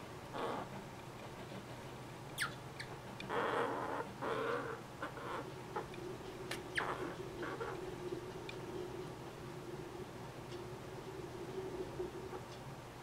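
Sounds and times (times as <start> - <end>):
ground squirrels squeaking: 2.4 - 5.9, 6.6 - 8.0.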